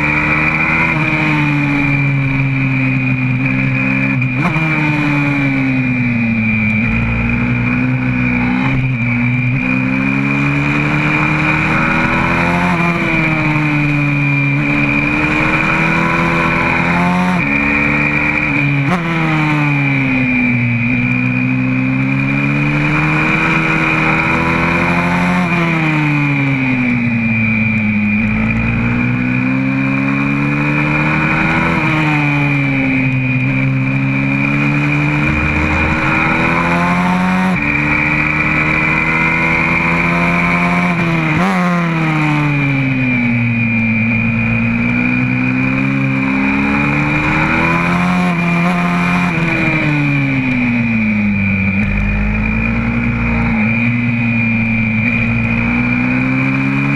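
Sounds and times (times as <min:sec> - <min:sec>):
motorbike engine revving: 0:00.0 - 0:56.9.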